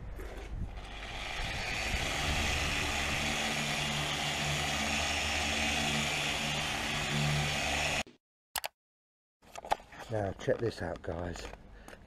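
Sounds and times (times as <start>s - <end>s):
rotary buffer motor hum: 0.7s - 8.0s.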